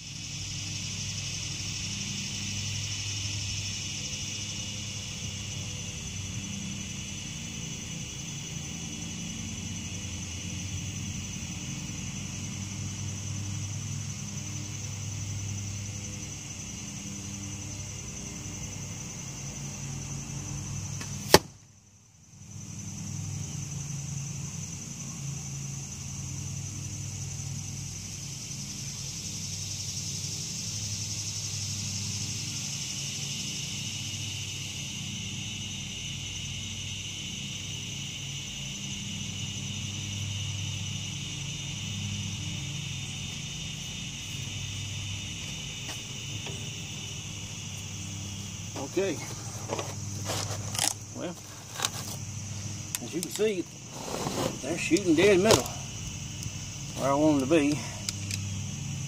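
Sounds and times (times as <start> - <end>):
high insect buzzing: 0.0 - 21.6, 22.3 - 59.0
arrow smacking into foam target: 21.1 - 21.6.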